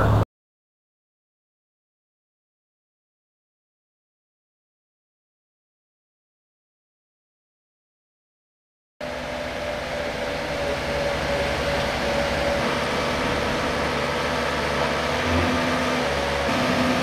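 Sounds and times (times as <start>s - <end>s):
diesel machinery engine drone: 0.0s - 0.2s, 9.0s - 17.0s.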